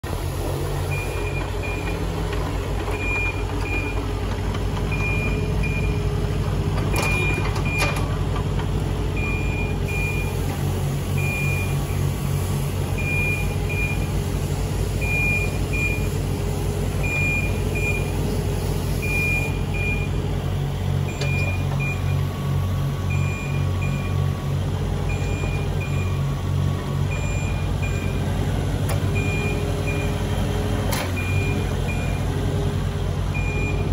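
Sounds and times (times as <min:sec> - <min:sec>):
excavator diesel engine running: 0:00.0 - 0:33.9.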